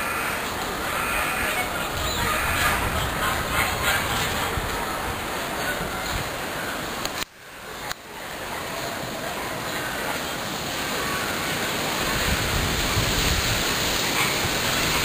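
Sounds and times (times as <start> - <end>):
wind on microphone: 0.7 - 6.6, 12.0 - 15.0.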